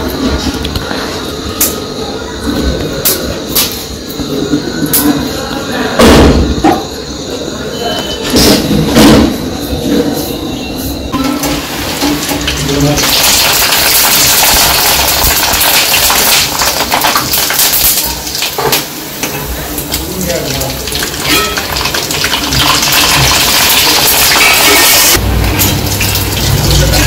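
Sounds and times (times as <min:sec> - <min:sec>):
food sizzling in hot oil: 0:11.2 - 0:27.0.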